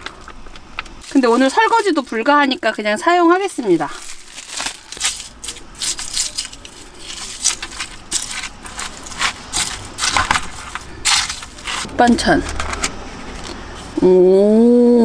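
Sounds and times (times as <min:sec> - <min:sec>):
chopsticks crunching slushy ice: 0:00.0 - 0:13.6
wrapper rustling: 0:00.9 - 0:13.6.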